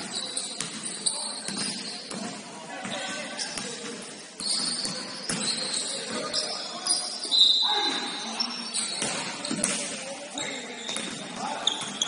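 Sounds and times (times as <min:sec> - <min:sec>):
players' voices: 0:00.0 - 0:12.0
sneakers squeaking on floor: 0:00.0 - 0:12.0.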